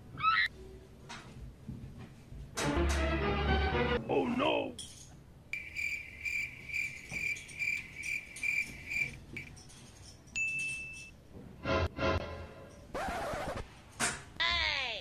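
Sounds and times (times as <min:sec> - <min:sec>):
cricket chirping: 0:05.5 - 0:09.5.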